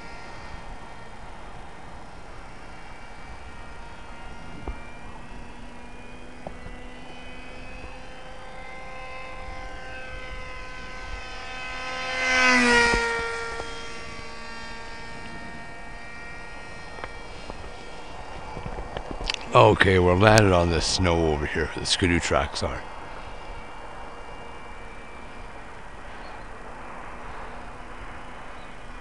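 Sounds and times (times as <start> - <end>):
model plane motor whine: 0.0 - 29.0.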